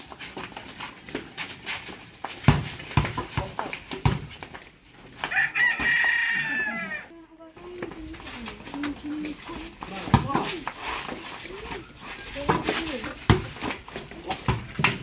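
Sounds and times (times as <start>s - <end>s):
rooster crowing: 5.2s - 7.1s.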